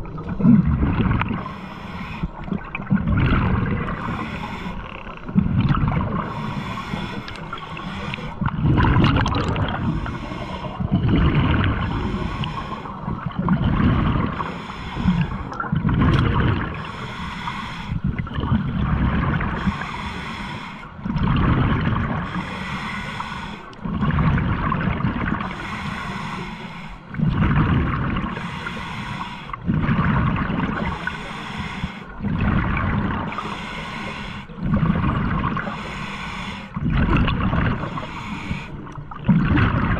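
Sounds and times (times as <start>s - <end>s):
rush of bubbles: 0.0s - 1.4s, 2.4s - 4.3s, 5.3s - 6.5s, 8.4s - 10.2s, 10.8s - 12.0s, 13.0s - 14.4s, 15.2s - 16.9s, 21.1s - 22.2s, 23.8s - 25.5s, 27.1s - 28.4s, 29.6s - 31.2s, 32.2s - 33.5s, 34.6s - 35.8s, 36.8s - 38.1s, 39.1s - 39.9s
breathing through a regulator: 1.2s - 2.7s, 3.5s - 5.3s, 5.9s - 8.6s, 9.2s - 15.7s, 16.6s - 18.2s, 19.4s - 21.2s, 21.9s - 23.9s, 25.2s - 27.4s, 28.0s - 39.2s.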